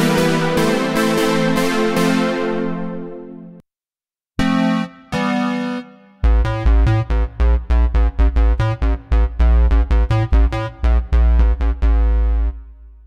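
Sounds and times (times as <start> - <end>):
heavy synth bass: 0.0 - 3.2, 6.2 - 13.0
synthesizer staccato notes: 0.0 - 3.6.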